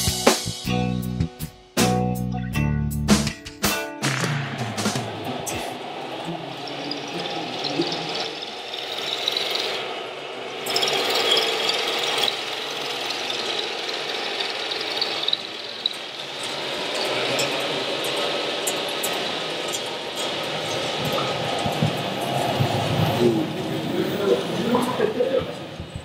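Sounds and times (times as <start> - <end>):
model truck motors whirring: 5.3 - 26.0.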